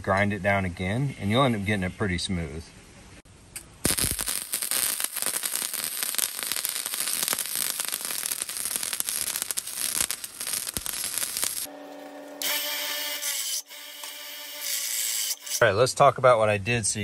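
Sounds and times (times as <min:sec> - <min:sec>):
welding arc crackling: 0:03.8 - 0:15.6.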